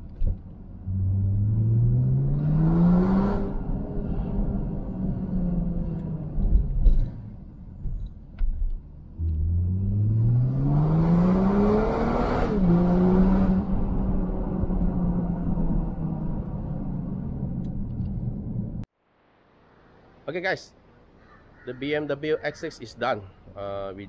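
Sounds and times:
car engine accelerating: 0.2s - 8.0s, 8.7s - 18.9s.

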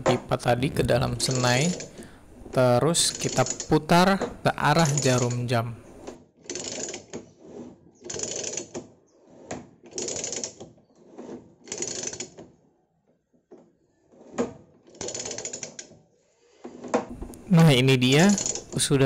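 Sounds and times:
rapid ratchet clicking: 3.0s - 3.8s, 6.0s - 7.1s, 8.0s - 8.8s, 9.9s - 10.6s, 11.7s - 12.4s, 14.9s - 15.9s, 18.0s - 18.9s.

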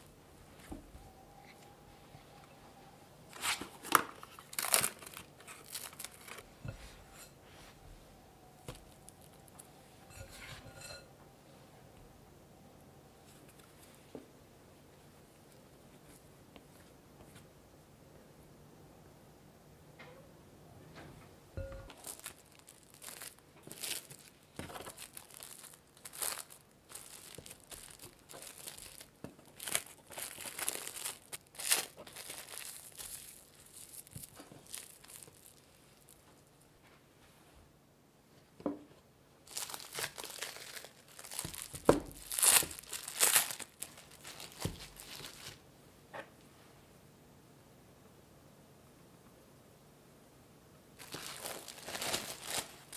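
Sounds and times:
cling film crinkling: 3.3s - 6.5s, 21.9s - 36.6s, 39.4s - 45.6s, 51.0s - 52.9s.

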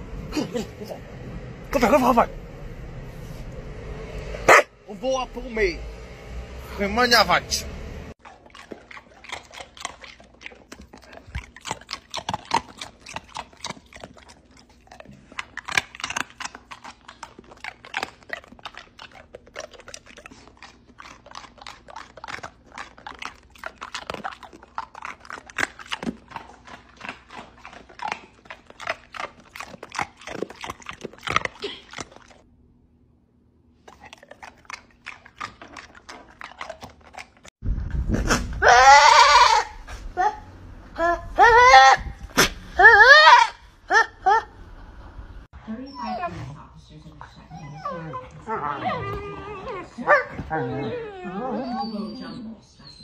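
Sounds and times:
dog mouth clicking and smacking: 8.2s - 32.4s, 33.9s - 37.5s.

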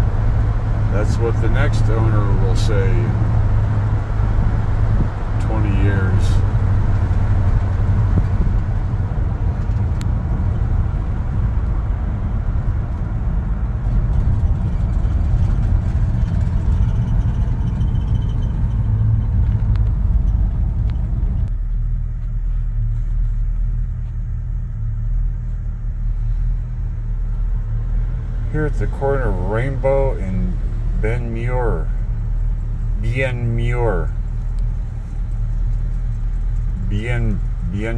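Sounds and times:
road noise: 0.0s - 37.9s
truck engine rumble: 0.0s - 37.9s.

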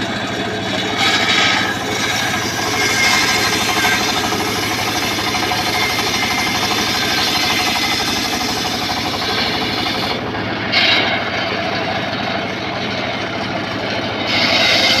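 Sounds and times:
engine running: 0.0s - 15.0s
saw blade cutting wood: 0.0s - 15.0s.

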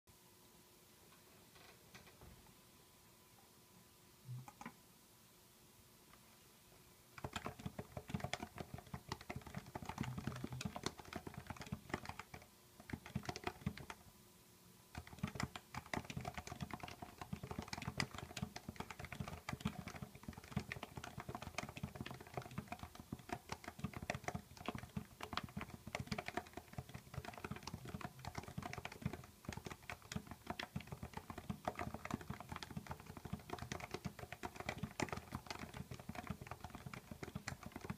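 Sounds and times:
keyboard typing: 4.3s - 4.8s, 7.2s - 14.0s, 14.9s - 37.9s.

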